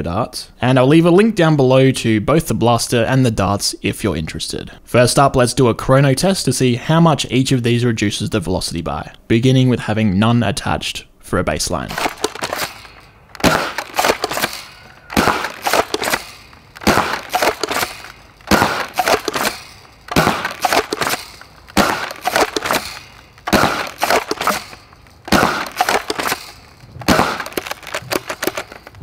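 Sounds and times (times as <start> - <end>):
toy blaster shots cracking: 11.9 - 29.0.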